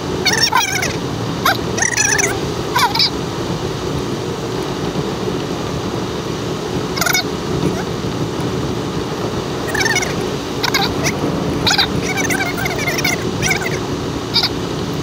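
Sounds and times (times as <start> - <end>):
vehicle engine and road rumble: 0.0 - 15.0
high bending squeaks: 9.7 - 14.6.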